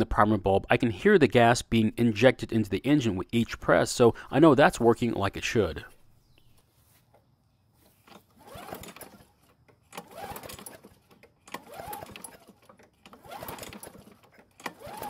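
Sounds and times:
lawn mower pull-cord cranking: 7.8s - 15.0s.

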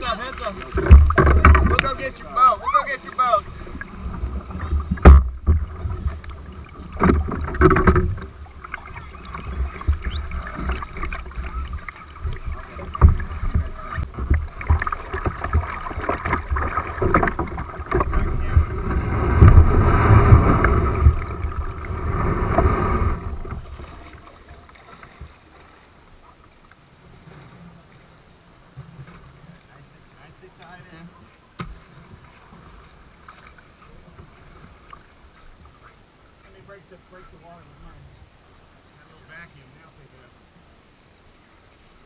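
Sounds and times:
water splashing around a canoe: 0.0s - 42.0s
knocks against a hull: 0.7s - 2.0s, 4.5s - 8.4s, 12.2s - 23.7s, 31.6s - 31.9s
wind buffeting microphone: 3.4s - 24.1s.

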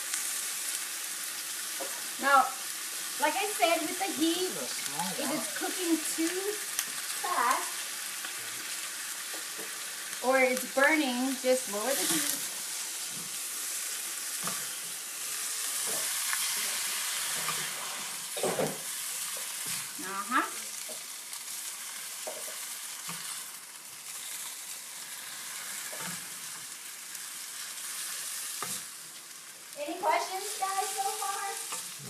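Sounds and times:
food sizzling in hot oil: 0.0s - 32.0s
spatula scraping a pan: 11.7s - 20.0s.

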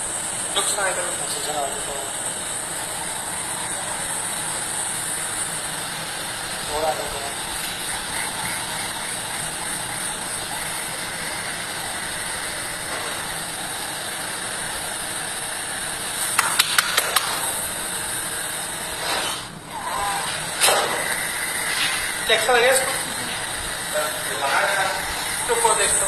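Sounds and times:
steady hiss: 0.0s - 26.0s
sharp clicks: 16.2s - 17.6s.

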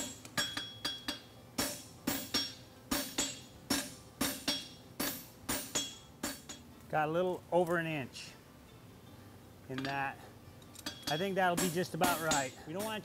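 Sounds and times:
hammer striking steel on anvil: 0.0s - 6.7s, 10.8s - 13.0s.

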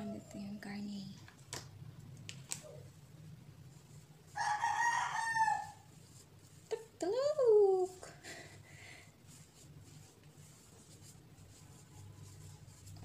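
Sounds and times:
rooster crowing: 4.4s - 5.9s.

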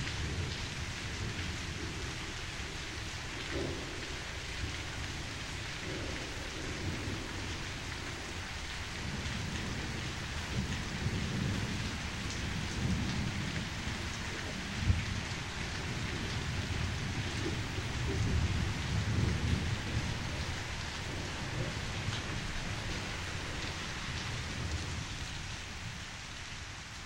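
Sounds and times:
steady rain: 0.0s - 27.0s
thunder rumbling: 0.2s - 25.1s.

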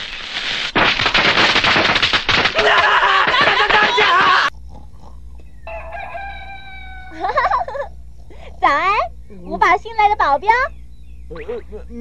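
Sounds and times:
firecrackers popping: 0.0s - 4.5s
voices crying out: 2.6s - 4.5s
rooster crowing: 5.6s - 7.8s.

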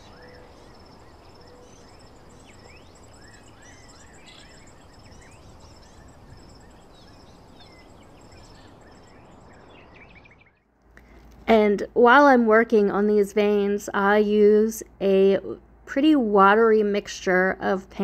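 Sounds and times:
high insect trill: 0.0s - 9.6s
small birds chirping: 0.0s - 11.2s.

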